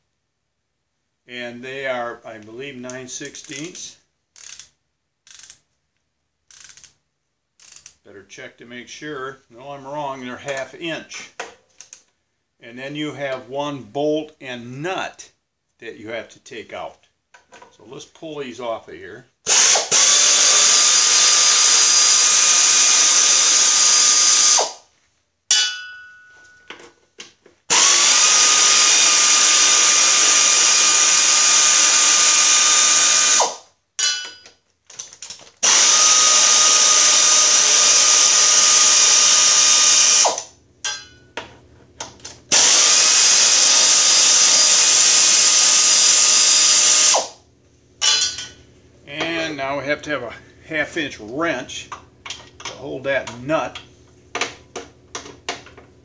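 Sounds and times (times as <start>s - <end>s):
air ratchet whirring: 4.4s - 5.6s, 6.5s - 7.0s, 7.6s - 8.0s, 19.5s - 24.9s, 27.7s - 33.7s, 35.6s - 40.6s, 42.5s - 47.4s.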